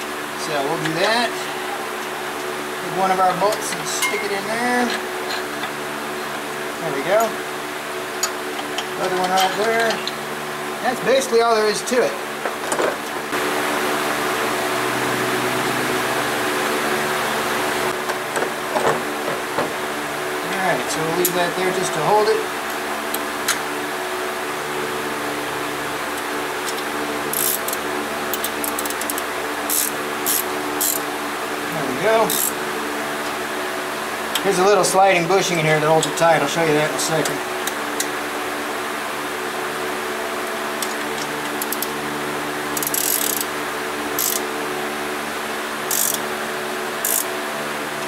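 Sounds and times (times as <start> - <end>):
steady machine hum: 0.0 - 48.0
wrench clicking: 27.4 - 31.0, 32.3 - 32.6, 42.8 - 43.5, 44.2 - 44.4, 45.9 - 46.2, 47.0 - 47.3.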